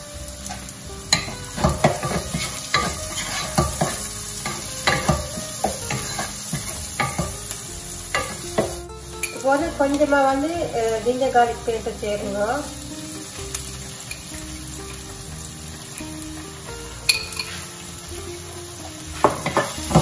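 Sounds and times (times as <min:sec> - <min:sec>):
vegetables sizzling in oil: 0:00.0 - 0:20.0
wooden spatula scraping pot: 0:01.2 - 0:07.3.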